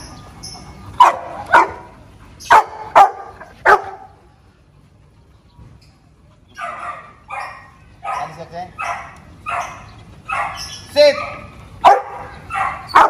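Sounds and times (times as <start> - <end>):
dog barking: 1.0 - 1.9, 2.5 - 4.1, 6.6 - 13.0.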